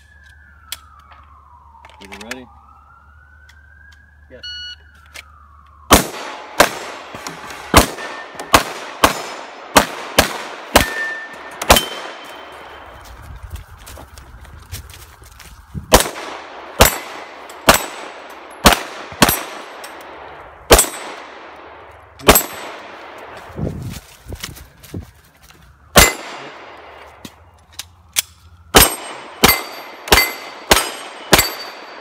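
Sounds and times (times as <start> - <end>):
handgun shots: 7.8 - 12.3.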